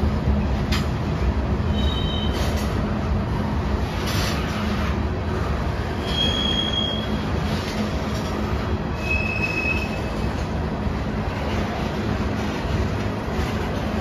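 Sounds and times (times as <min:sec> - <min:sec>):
freight train wheels rumbling: 0:00.0 - 0:14.0
high-pitched wheel squeals: 0:01.7 - 0:02.6, 0:06.0 - 0:07.3, 0:08.9 - 0:10.3.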